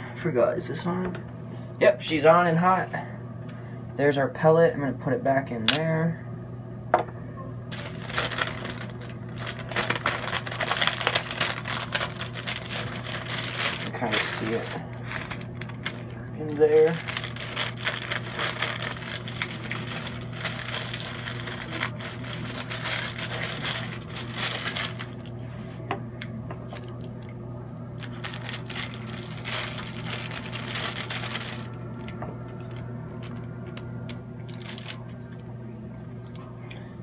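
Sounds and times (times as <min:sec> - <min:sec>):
steady low hum: 0:00.0 - 0:37.0
paper crinkling and rustling: 0:07.7 - 0:25.8, 0:28.0 - 0:35.2.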